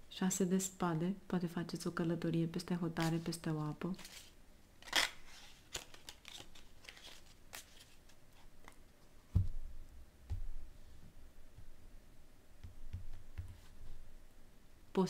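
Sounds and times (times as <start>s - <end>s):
cards shuffling: 3.0s - 3.4s, 4.0s - 8.9s
soft low thumps: 9.3s - 10.7s.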